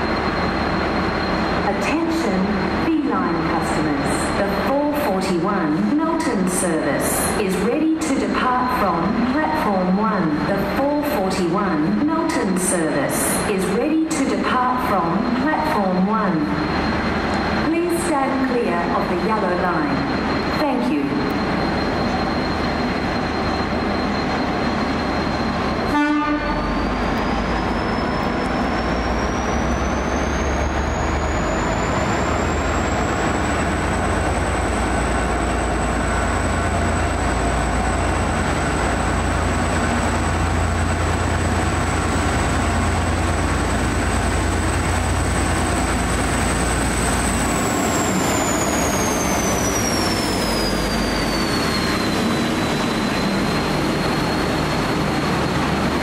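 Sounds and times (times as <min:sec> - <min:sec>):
locomotive horn blip: 0:25.9 - 0:26.8
diesel engine deep rumble: 0:26.5 - 0:56.0.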